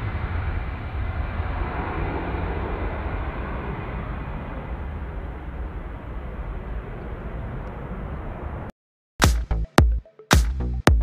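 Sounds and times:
electronic dance music: 9.2s - 11.0s.

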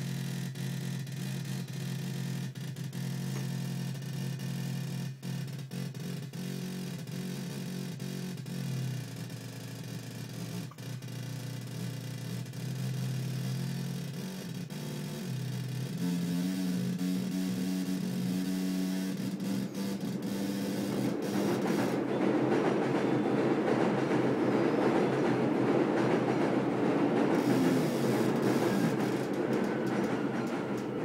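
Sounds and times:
electronic buzzing tone: 12.9s - 22.2s, 27.3s - 29.4s.

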